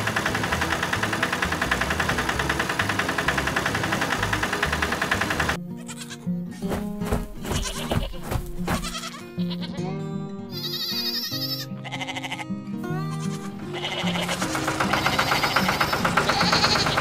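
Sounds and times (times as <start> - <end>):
light cartoon background music: 0.0 - 17.0
sheep bleating: 5.7 - 6.6, 7.4 - 17.0.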